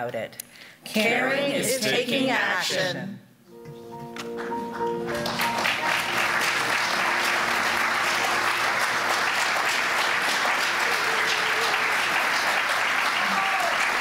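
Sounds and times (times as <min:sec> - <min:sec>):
audience applauding: 0:04.4 - 0:14.0.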